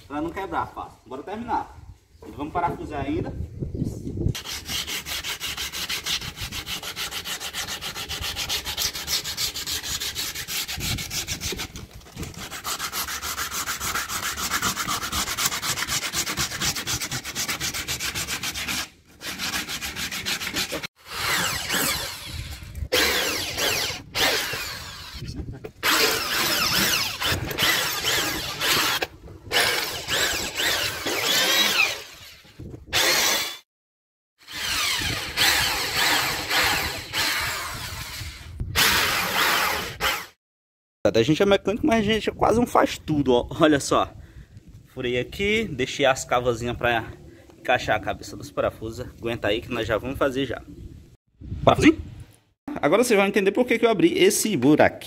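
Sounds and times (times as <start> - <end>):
sandpaper rubbing on plywood: 4.4 - 21.4.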